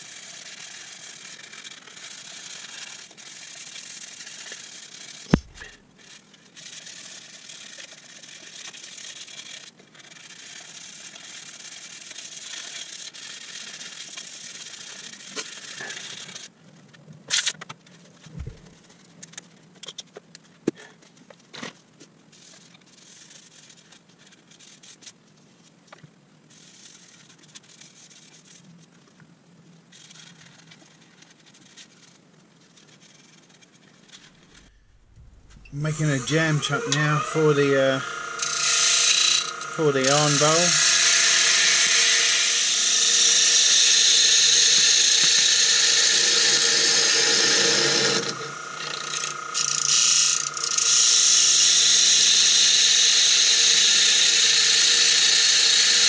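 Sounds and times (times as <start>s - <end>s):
sandpaper rasping on wood: 0.0s - 16.4s, 35.8s - 48.4s
sharp clicks and knocks: 5.3s - 5.7s.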